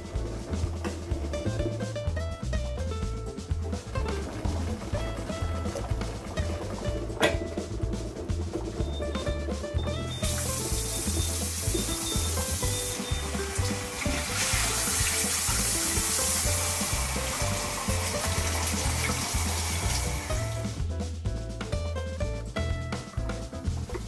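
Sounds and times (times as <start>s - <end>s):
background music with bass: 0.0s - 24.0s
tap water pouring into pan: 3.7s - 20.8s.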